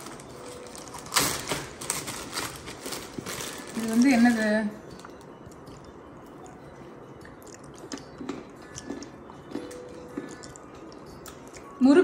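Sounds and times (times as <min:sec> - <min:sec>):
person chewing crunchy snack: 0:07.2 - 0:11.7.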